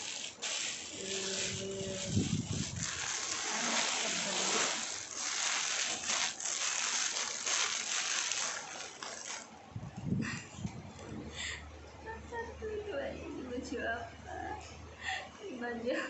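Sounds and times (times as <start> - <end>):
plastic packaging crinkling: 0.0 - 9.6.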